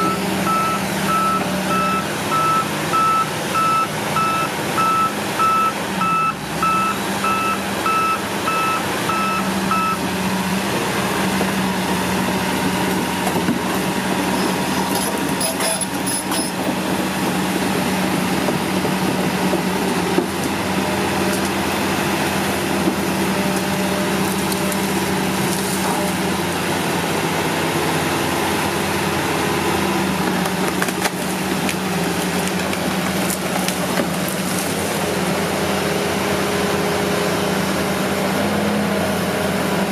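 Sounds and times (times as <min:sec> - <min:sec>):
excavator travel alarm beeping: 0:00.0 - 0:10.0
diesel engine running: 0:00.0 - 0:39.9.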